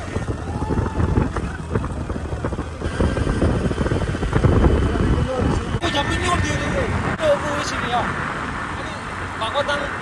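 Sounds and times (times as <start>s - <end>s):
scooter engine running: 0.0s - 5.8s
wind buffeting microphone: 0.0s - 7.4s.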